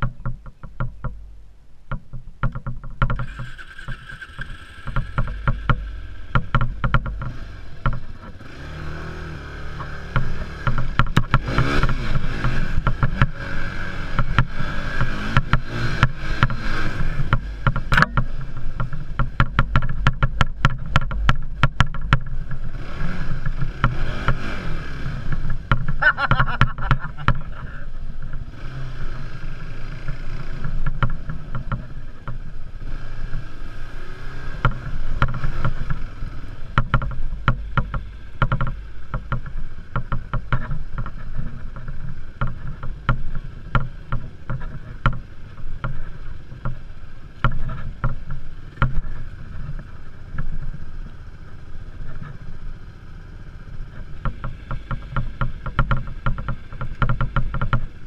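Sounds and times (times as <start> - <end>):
knocks and rattles from bumps: 0.0 - 28.6, 29.4 - 58.0
quad engine revving: 3.1 - 58.0.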